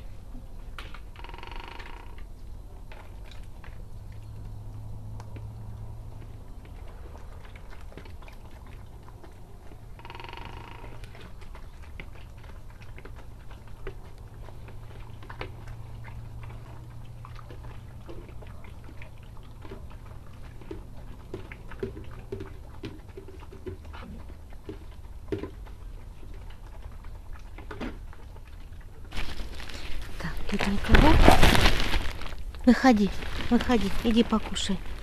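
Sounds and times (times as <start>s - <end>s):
puppies eating from plastic bowls: 0.0s - 35.0s
plastic tarp rustling: 29.1s - 35.0s.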